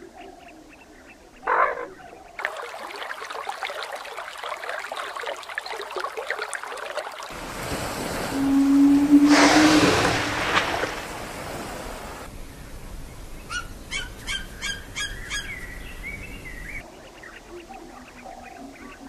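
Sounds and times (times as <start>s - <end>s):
rush of sea water: 2.4s - 12.3s
low tone of surfacing whale: 7.4s - 12.3s.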